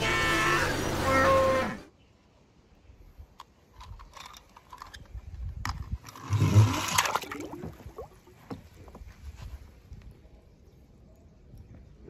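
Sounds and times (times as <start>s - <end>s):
toy car splashing into water: 6.1s - 7.8s
bubbling gurgle: 6.2s - 8.5s.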